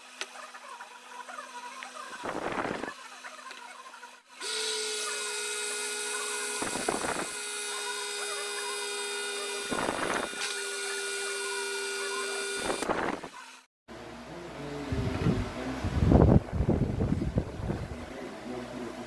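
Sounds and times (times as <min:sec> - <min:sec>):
blender motor whine: 0:00.0 - 0:13.7.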